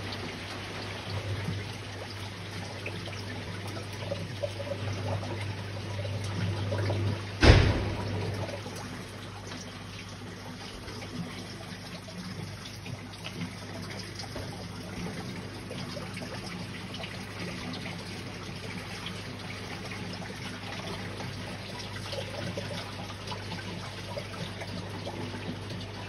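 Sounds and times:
aquarium water trickling: 0.0 - 26.0.

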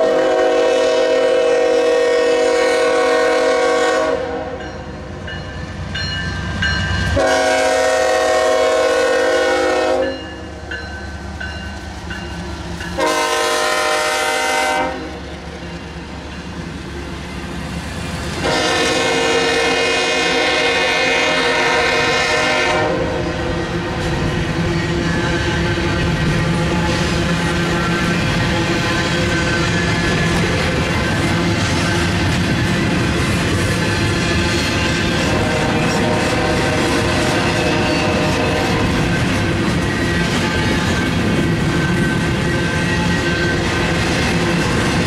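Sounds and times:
locomotive air horn blasts: 0.0 - 4.6, 7.2 - 10.3, 13.0 - 15.3, 18.4 - 23.3, 35.3 - 38.9
train cars rumbling on rails: 0.0 - 45.0.

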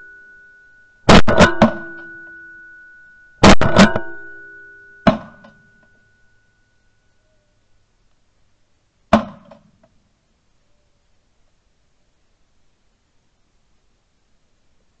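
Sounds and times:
plucked string hits: 1.1 - 2.4, 3.4 - 5.9.

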